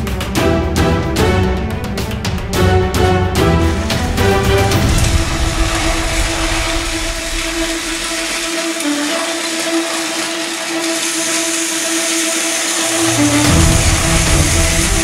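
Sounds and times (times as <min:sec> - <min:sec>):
train rattling on plastic track: 0:04.0 - 0:15.0
toy train motors whirring: 0:04.8 - 0:15.0.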